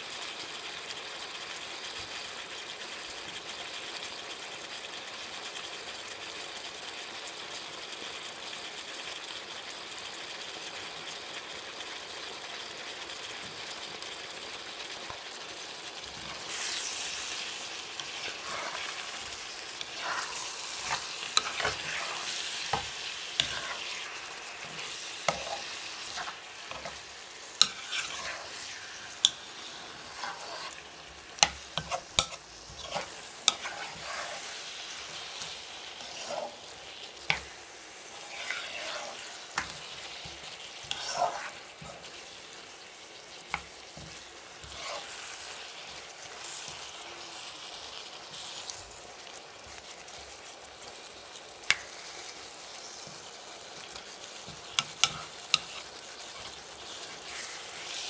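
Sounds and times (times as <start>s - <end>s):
food sizzling in a wok: 0.0s - 58.0s
spatula tapping and scraping pan: 16.1s - 36.6s, 37.2s - 37.5s, 38.4s - 42.2s, 43.5s - 45.5s, 51.7s - 52.0s, 53.8s - 58.0s.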